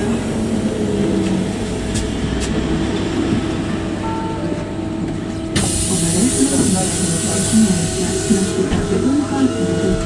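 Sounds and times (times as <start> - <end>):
tram rolling past: 0.0 - 10.0.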